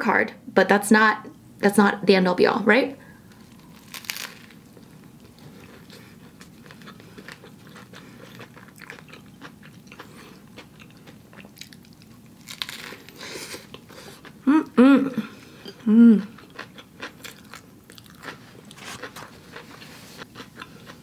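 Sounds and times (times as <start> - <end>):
person biting and chewing: 3.4 - 14.4, 16.3 - 21.0.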